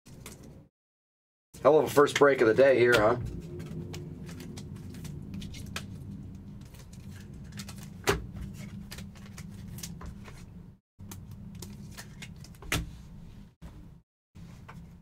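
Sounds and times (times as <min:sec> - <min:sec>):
low hum: 0:02.7 - 0:11.8
cards clicking and rustling: 0:02.9 - 0:12.9.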